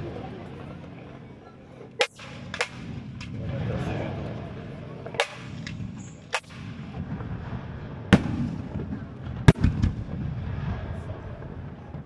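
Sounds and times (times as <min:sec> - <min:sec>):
low continuous rumble: 0:00.0 - 0:12.0
firework shells bursting: 0:02.0 - 0:03.4, 0:05.2 - 0:07.3.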